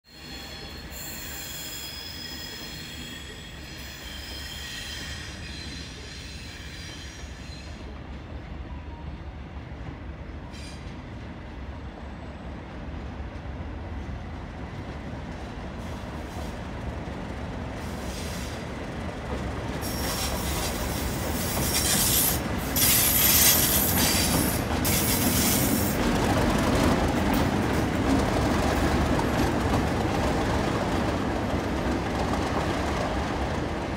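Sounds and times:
steel wheels squealing: 0.1 - 7.9, 19.8 - 26.0
diesel locomotive engines: 0.1 - 33.9.

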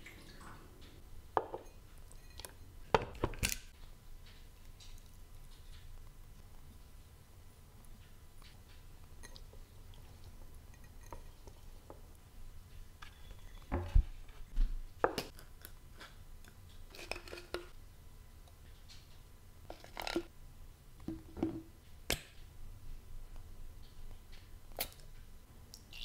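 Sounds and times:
utensils clinking over glass bowl: 1.6 - 2.6.

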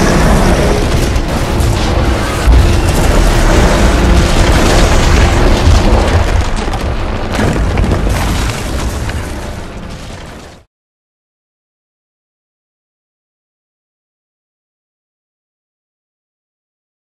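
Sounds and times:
explosion boom and rumble: 0.0 - 10.7.

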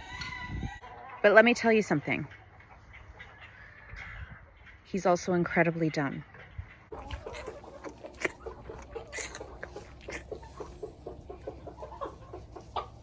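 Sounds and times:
alpaca chewing hay: 6.9 - 13.0.

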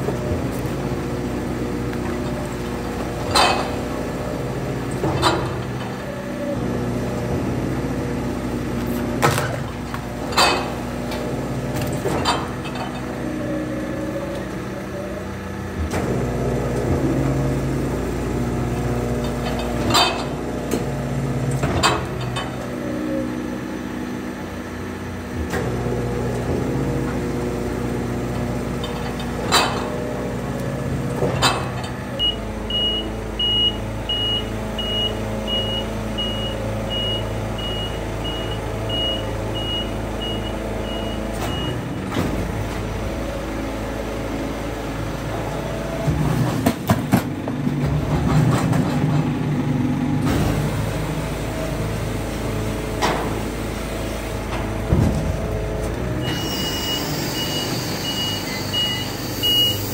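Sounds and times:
clanking and rattling: 0.0 - 6.0, 8.8 - 13.3, 18.7 - 20.9, 28.1 - 30.4, 31.0 - 32.2, 45.2 - 49.6
garbage truck engine and hydraulics: 0.0 - 59.9
high warning beep: 56.2 - 59.9.

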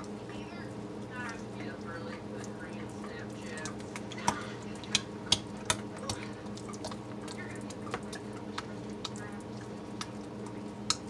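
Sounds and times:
spatula stirring thick paste: 3.3 - 11.0.

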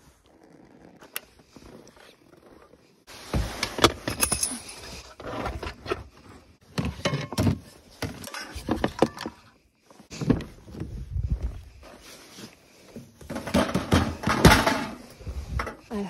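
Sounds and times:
loose items clattering in plastic tub: 13.3 - 15.0.

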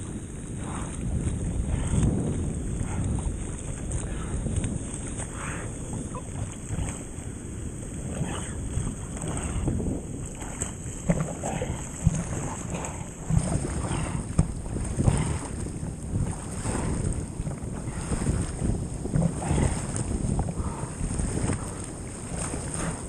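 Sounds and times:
wind buffeting microphone: 0.0 - 23.0
rushing whitewater surf: 5.0 - 23.0.

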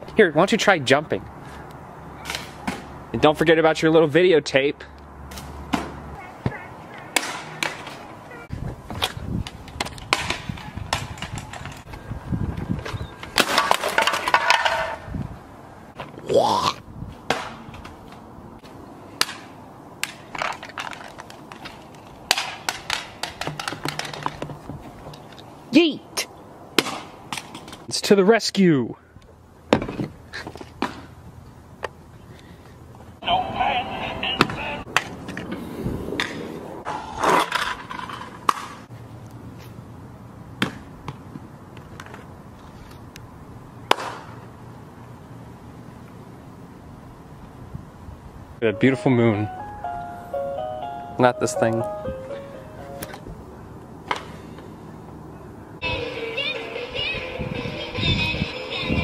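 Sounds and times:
handling clicks and knocks: 20.0 - 25.5.

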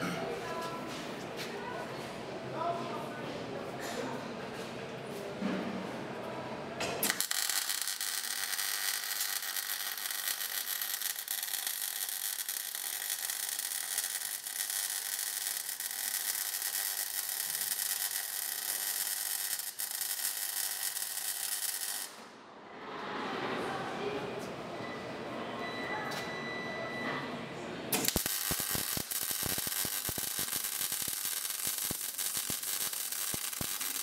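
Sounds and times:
welding arc crackling sizzle: 7.0 - 22.2, 28.0 - 34.0.

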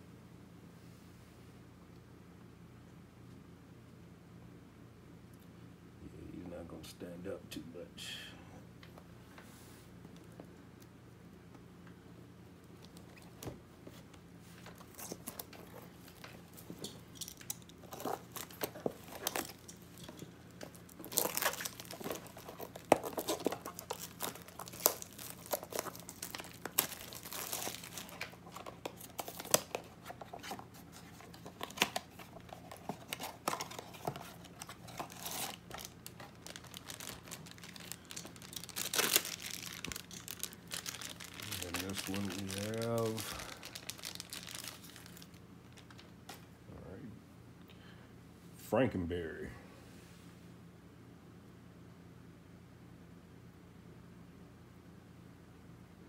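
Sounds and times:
packaging crinkling and tearing: 14.6 - 46.1.

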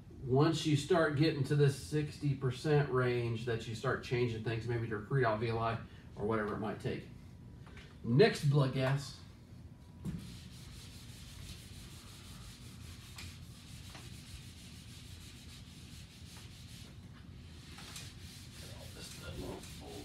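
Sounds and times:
eraser rubbing on whiteboard: 10.1 - 20.0.

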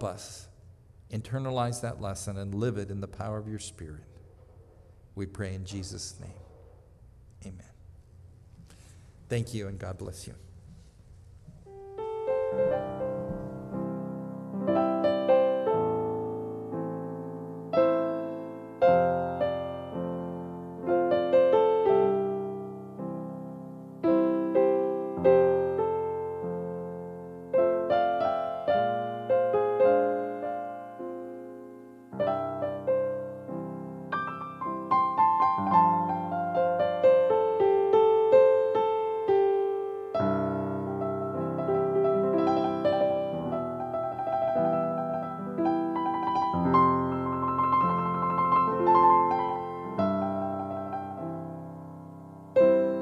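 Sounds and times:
solo piano chords: 11.6 - 53.0.

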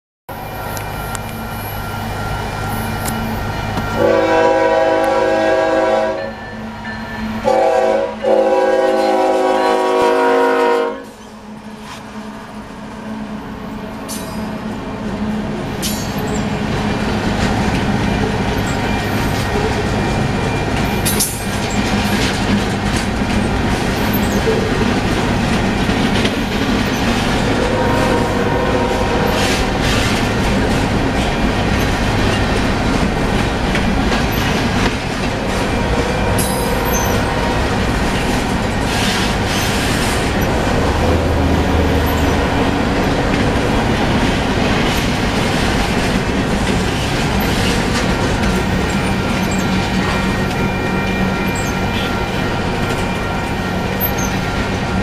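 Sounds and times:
freight train rolling past: 0.3 - 55.0
wheels clacking over rail joints: 15.6 - 27.9, 29.2 - 55.0.

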